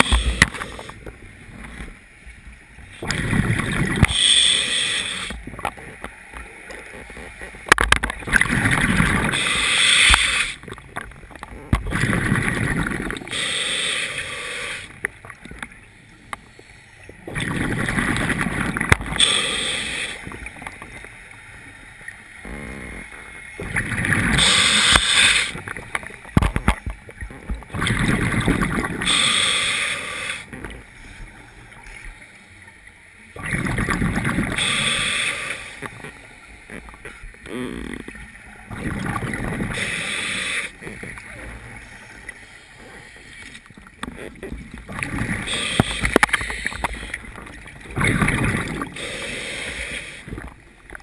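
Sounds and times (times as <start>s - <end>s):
diver exhaling bubbles underwater: 44.1s - 50.5s.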